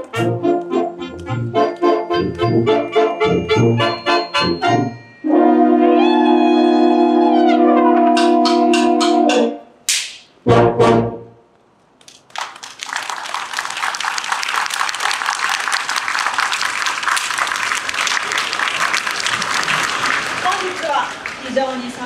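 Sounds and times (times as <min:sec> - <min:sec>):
audience applause: 0:12.3 - 0:22.0.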